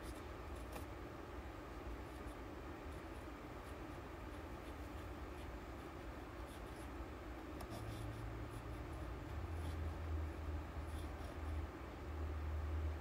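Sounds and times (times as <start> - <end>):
pen nib scratching paper: 0.0 - 0.9, 2.0 - 7.0, 7.6 - 11.7.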